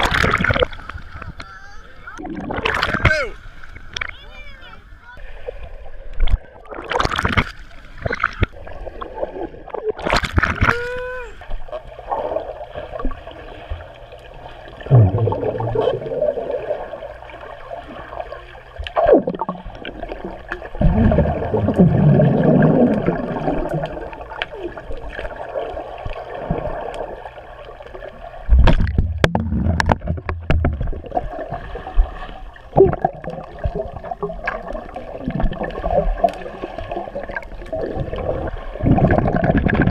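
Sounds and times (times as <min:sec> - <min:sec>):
underwater gurgling and bubbling: 0:00.0 - 0:01.4, 0:02.1 - 0:03.0, 0:11.5 - 0:39.9.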